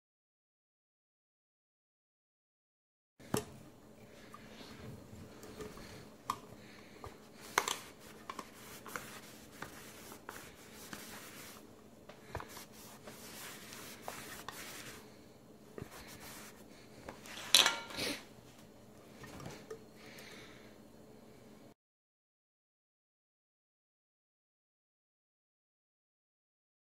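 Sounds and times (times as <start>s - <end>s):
light rubbing of camping pan: 7.1s - 15.2s, 15.8s - 18.2s.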